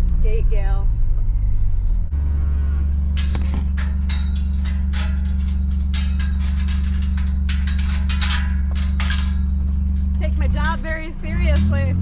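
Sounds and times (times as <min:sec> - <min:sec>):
vehicle engine idling: 0:00.0 - 0:12.0
metal gate chain clinking: 0:03.0 - 0:12.0.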